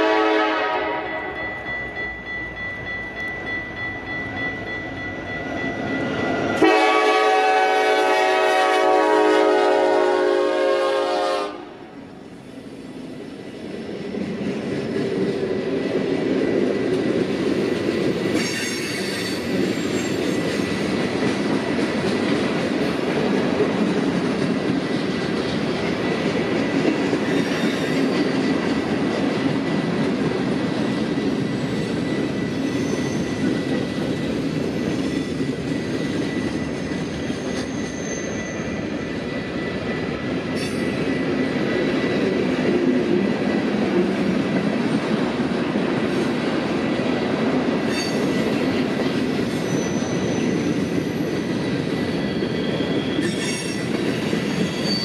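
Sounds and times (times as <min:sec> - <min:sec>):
train horn blast: 0:00.0 - 0:01.4, 0:06.6 - 0:11.9
train wheels clicking over rails: 0:13.5 - 0:54.8.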